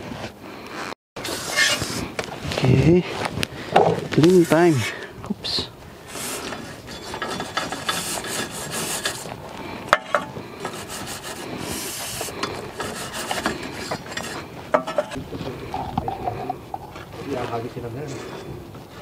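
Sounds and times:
wire brush scrubbing metal: 0:01.2 - 0:02.0, 0:06.0 - 0:15.2.

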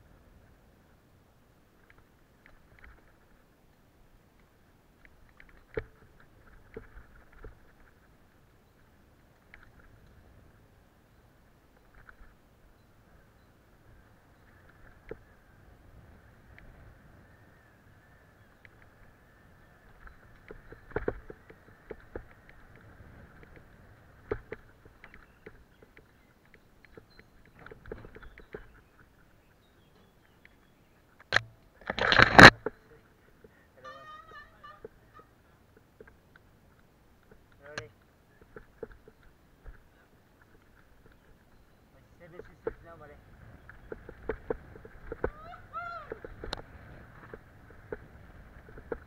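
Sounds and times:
faint bike rolling noise: 0:00.0 - 0:49.0
wind: 0:00.0 - 0:49.0
bike rattling and clunking: 0:19.9 - 0:29.1
bike knocking over roots: 0:31.3 - 0:32.8.

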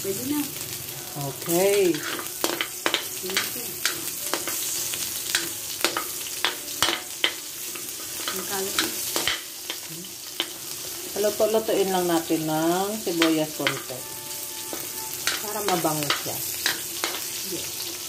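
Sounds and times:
food sizzling in hot oil: 0:00.0 - 0:18.0
metal spatula scraping wok: 0:01.4 - 0:11.2.

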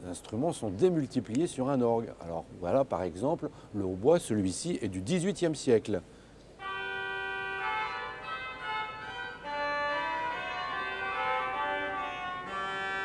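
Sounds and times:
organ reed stop melody: 0:06.6 - 0:13.0.

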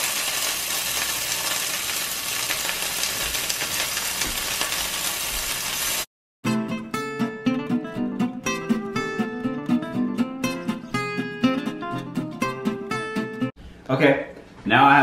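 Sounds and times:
peppers sizzling in oil: 0:00.0 - 0:06.1
acoustic guitar music: 0:06.4 - 0:13.5.

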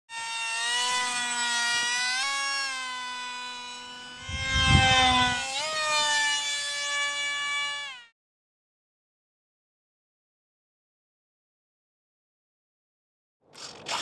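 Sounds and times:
model plane motor whining: 0:00.1 - 0:08.2
plane rushing past: 0:04.2 - 0:05.4.

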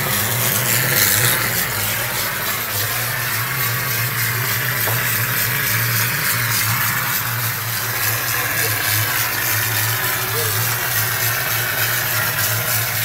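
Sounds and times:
spraying machine hum and hiss: 0:00.0 - 0:13.0.

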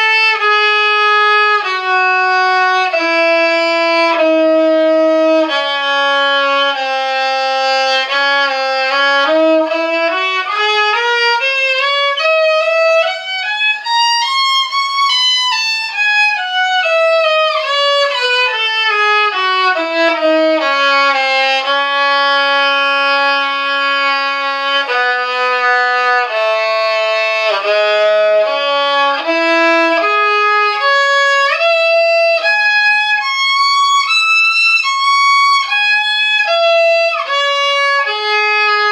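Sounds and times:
solo violin playing scale: 0:00.0 - 0:38.9.

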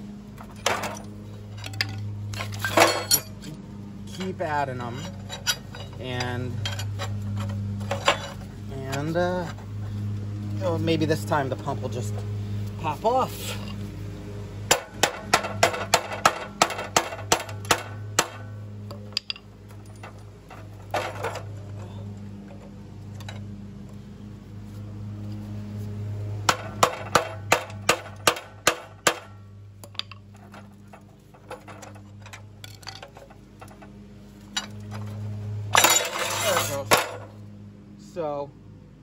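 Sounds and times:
steady low hum: 0:00.0 - 0:39.0
hammer striking metal: 0:14.7 - 0:18.5, 0:26.5 - 0:29.4.

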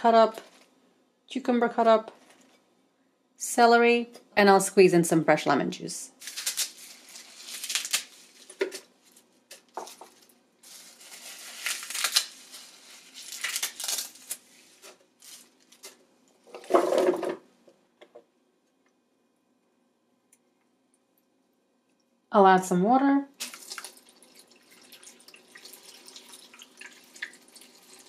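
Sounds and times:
kale leaves rustling and crinkling: 0:06.2 - 0:16.0
vegetable pieces clattering in pitcher: 0:14.8 - 0:17.4.

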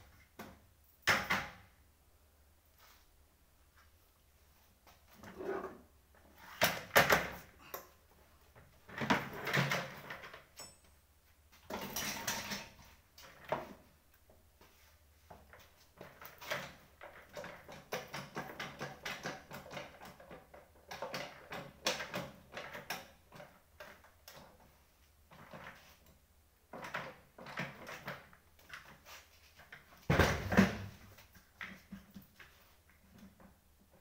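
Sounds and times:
office chairs clattering and scraping: 0:05.0 - 0:07.5, 0:08.7 - 0:10.5.

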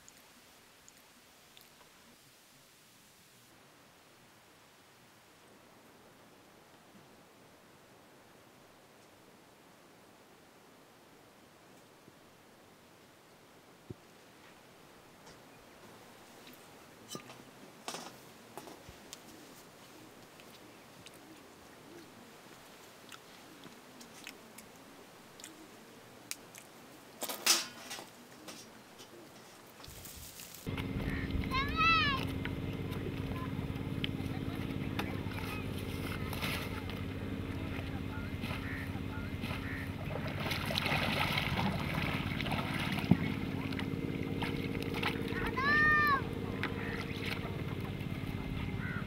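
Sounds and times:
water lapping and dripping: 0:00.0 - 0:02.2, 0:19.1 - 0:27.2, 0:30.6 - 0:49.0
steady low hum: 0:30.7 - 0:49.0.

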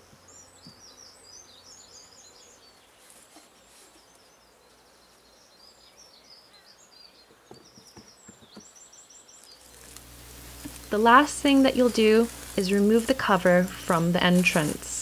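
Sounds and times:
small birds chirping: 0:00.0 - 0:15.0
faint knocks of wooden boxes: 0:07.3 - 0:08.8.

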